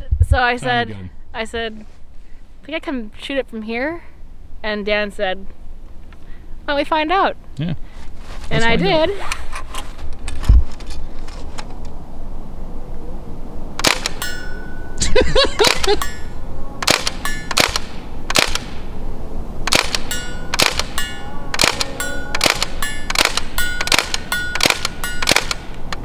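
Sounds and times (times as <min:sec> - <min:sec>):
bb gun firing rapid pops: 0:13.8 - 0:14.2, 0:16.8 - 0:18.7, 0:19.7 - 0:21.0, 0:21.6 - 0:25.6.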